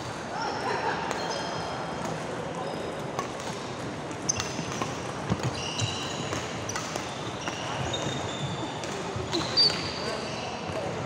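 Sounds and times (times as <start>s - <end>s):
rackets hitting shuttlecock: 3.0s - 10.0s
sports shoes squeaking: 4.3s - 10.9s.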